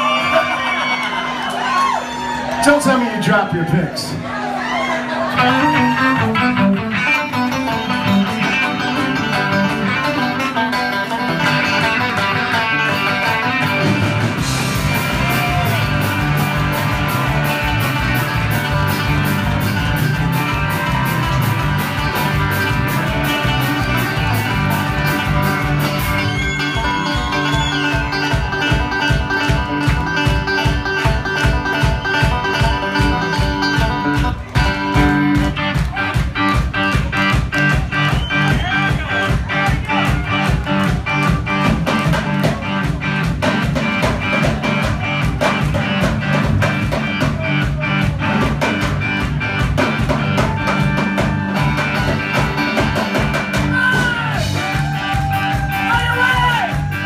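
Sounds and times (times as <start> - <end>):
country band playing: 0.0 - 57.0
banjo picking: 5.2 - 26.2, 27.9 - 35.6
fast steady drum beat: 13.8 - 29.6, 32.6 - 57.0.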